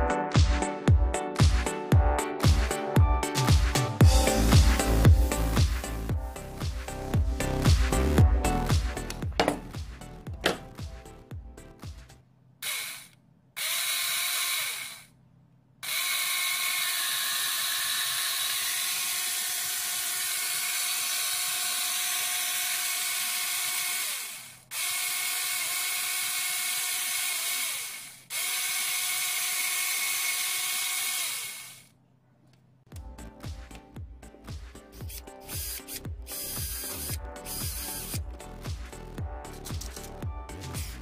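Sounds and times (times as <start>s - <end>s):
small electric motor whirring: 12.6s - 15.1s, 15.8s - 31.9s, 34.9s - 38.3s, 39.5s - 41.0s.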